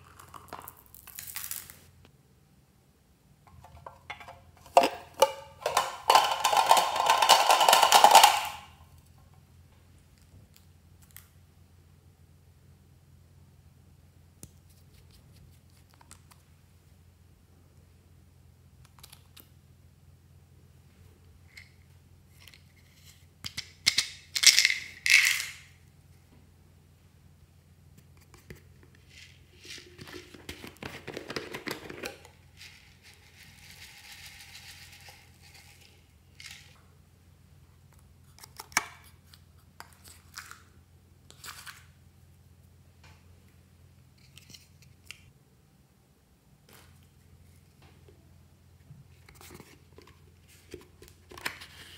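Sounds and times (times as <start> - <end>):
plastic bottles clicking and tapping: 3.5 - 8.6
bottle shaking rattles: 3.5 - 8.7, 29.1 - 36.7
rattling pour: 4.2 - 8.6.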